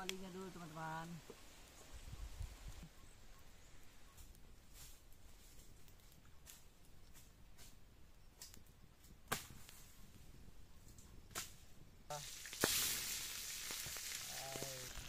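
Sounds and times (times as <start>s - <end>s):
wood fire crackling and popping: 0.0s - 2.8s, 3.8s - 15.0s
fish sizzling in hot oil: 12.1s - 15.0s.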